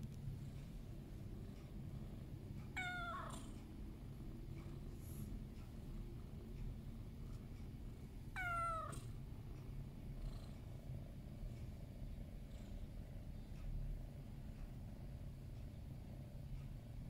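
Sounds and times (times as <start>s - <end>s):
cat purring: 0.0s - 17.0s
cat meowing: 2.8s - 3.3s, 8.3s - 9.1s.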